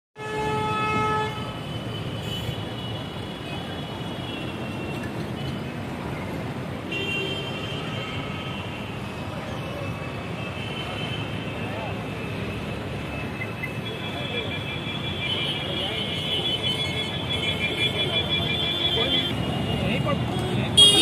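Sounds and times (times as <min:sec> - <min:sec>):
car horn: 0:00.2 - 0:03.1, 0:13.8 - 0:21.0
street traffic: 0:00.2 - 0:21.0.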